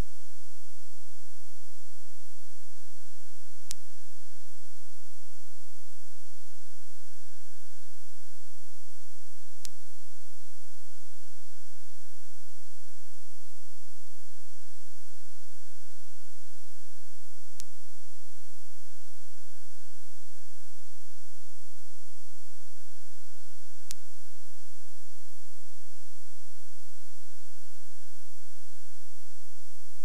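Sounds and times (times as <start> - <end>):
electrical hum and hiss: 0.0 - 30.0
faint wavering whine: 0.0 - 30.0
faint clicks: 17.6 - 17.8.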